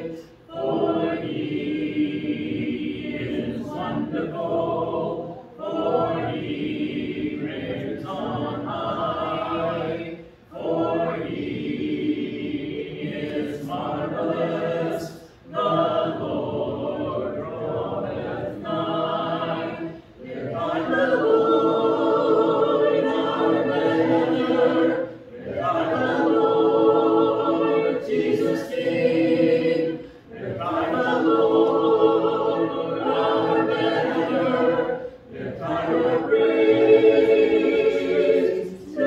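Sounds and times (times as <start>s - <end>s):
congregation singing a hymn: 0.0s - 39.0s.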